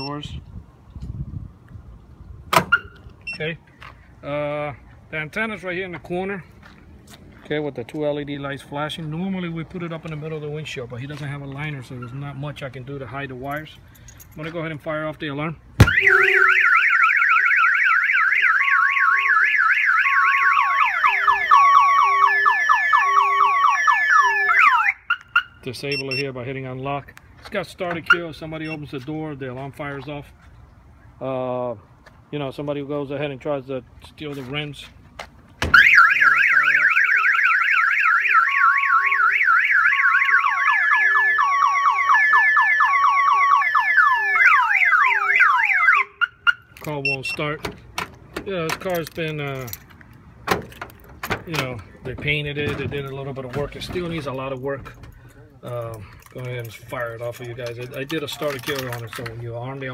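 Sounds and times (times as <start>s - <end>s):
car alarm siren: 15.8s - 26.2s, 35.7s - 47.3s.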